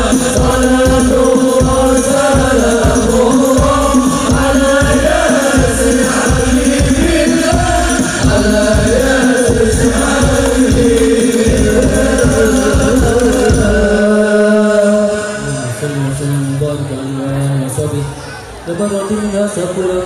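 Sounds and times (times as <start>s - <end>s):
frame drums beating: 0.0s - 14.3s
men chanting together: 0.0s - 15.8s.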